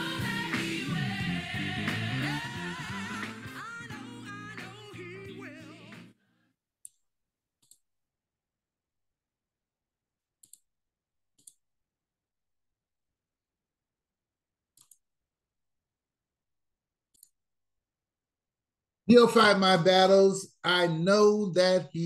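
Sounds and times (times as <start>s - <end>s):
computer mouse clicks: 7.6s - 7.8s, 10.4s - 10.7s, 11.4s - 11.6s, 14.7s - 15.1s, 17.1s - 17.4s.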